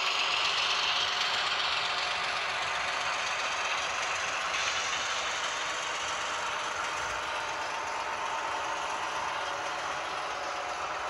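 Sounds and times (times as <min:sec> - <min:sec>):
model train running: 0:00.0 - 0:11.0.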